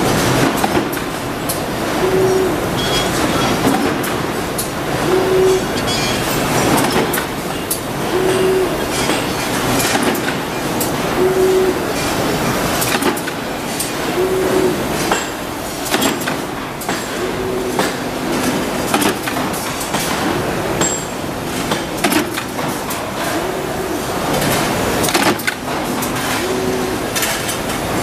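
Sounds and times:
roll-forming machine clatter: 0:00.0 - 0:02.0, 0:08.9 - 0:11.1, 0:24.0 - 0:26.4
short tone: 0:02.0 - 0:03.5, 0:05.1 - 0:06.2, 0:08.1 - 0:09.1.

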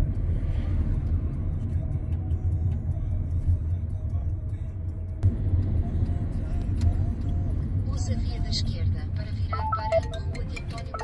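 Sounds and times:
engine and tyres rumbling: 0:00.0 - 0:11.0.

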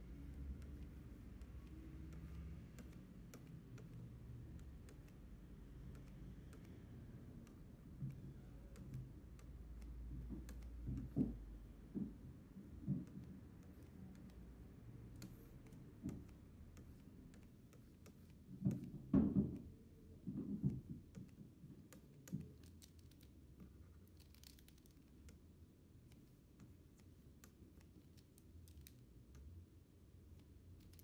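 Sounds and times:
stylus tapping on a screen: 0:00.1 - 0:23.3.

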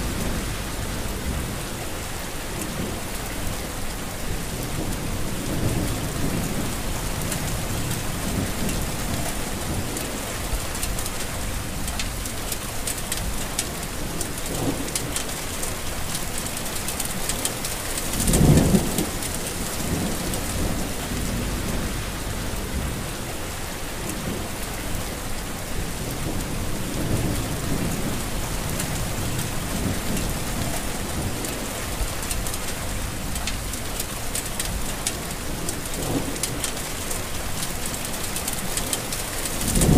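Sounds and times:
low thunder rolling: 0:00.0 - 0:03.6, 0:04.2 - 0:12.4, 0:18.0 - 0:33.9, 0:38.8 - 0:39.9
heavy rain falling: 0:00.0 - 0:39.9.

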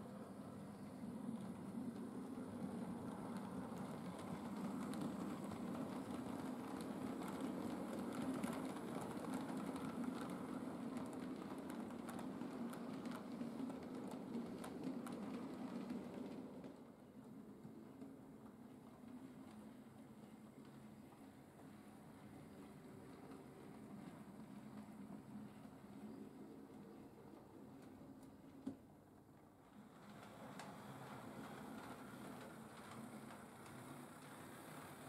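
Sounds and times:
model train motor hum: 0:30.1 - 0:35.0.

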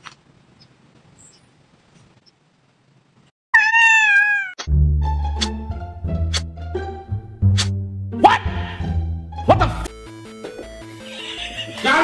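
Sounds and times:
cat meowing: 0:03.5 - 0:04.7
music with heavy bass: 0:04.7 - 0:11.7.

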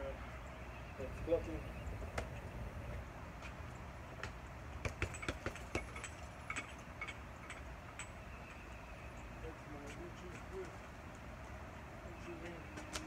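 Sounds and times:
strikes on wooden training dummy: 0:04.2 - 0:08.2.

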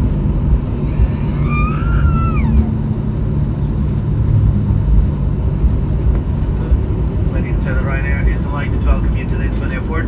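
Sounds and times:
airliner cabin rumble: 0:00.0 - 0:10.0
brief high cry: 0:01.2 - 0:02.7.

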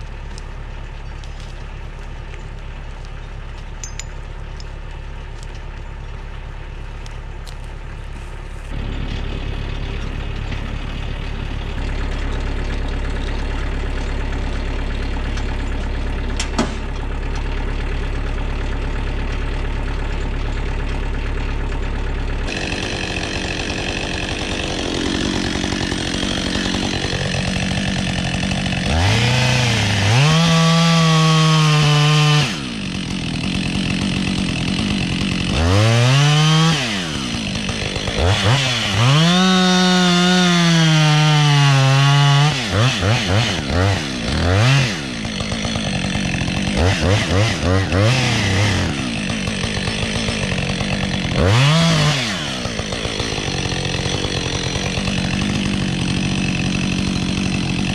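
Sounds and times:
tractor diesel engine idling: 0:00.0 - 0:31.2, 0:32.0 - 0:40.5, 0:42.7 - 0:57.9
chainsaw cutting tree trunk: 0:00.0 - 0:57.9.

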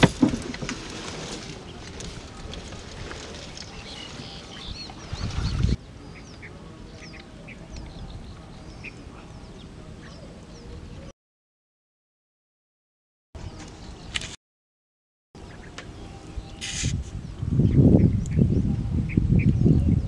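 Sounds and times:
rustling with low rumble: 0:00.0 - 0:05.8
birds chirping: 0:01.5 - 0:11.1, 0:15.4 - 0:20.0.

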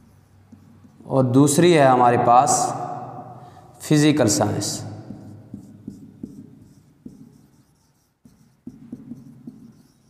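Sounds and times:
marker writing on whiteboard: 0:00.0 - 0:01.7, 0:04.2 - 0:10.0.

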